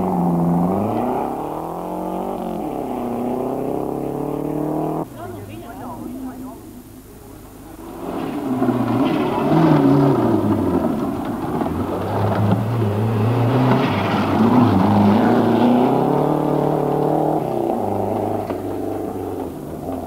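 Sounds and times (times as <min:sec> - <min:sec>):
rally car engine at full throttle: 0:00.0 - 0:20.0
tyres on loose gravel: 0:07.3 - 0:20.0.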